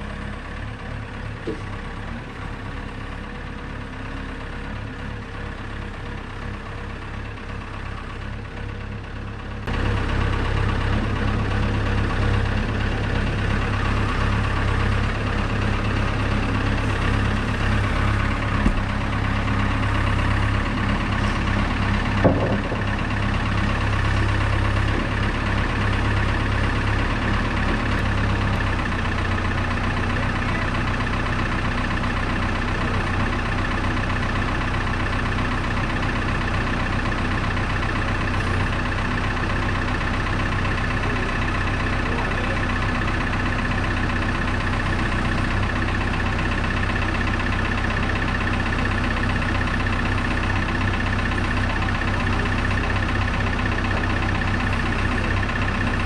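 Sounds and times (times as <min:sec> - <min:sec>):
diesel engine idling: 0:00.0 - 0:56.0
short knocks: 0:22.1 - 0:23.0.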